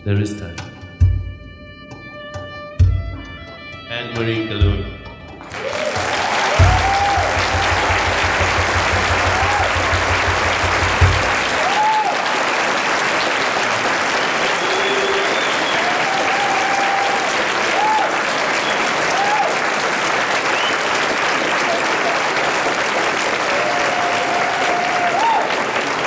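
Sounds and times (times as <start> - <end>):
audience applauding and cheering: 5.4 - 26.0
whoops: 5.5 - 12.4, 14.4 - 19.6, 23.4 - 25.6
rapid low thudding: 6.5 - 11.6.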